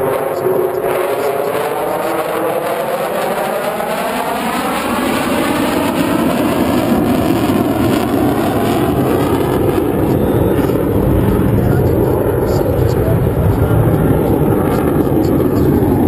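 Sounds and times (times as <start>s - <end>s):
jet engine roar: 0.0s - 16.0s.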